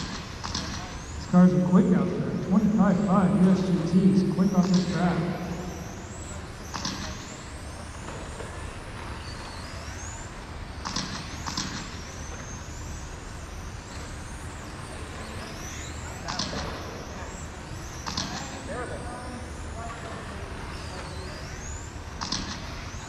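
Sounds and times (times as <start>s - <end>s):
electric rc car motors whining: 6.0s - 22.0s.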